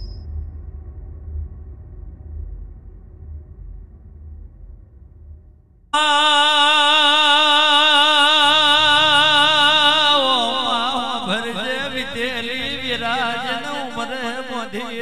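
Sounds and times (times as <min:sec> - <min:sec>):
low steady accompaniment: 0:00.0 - 0:05.9
man singing held notes: 0:06.0 - 0:15.0.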